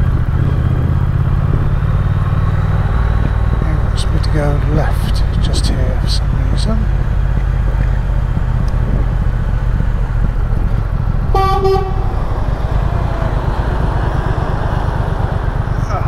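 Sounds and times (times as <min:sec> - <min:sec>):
motorcycle engine running: 0:00.0 - 0:16.0
vehicle horn beep: 0:11.3 - 0:12.1.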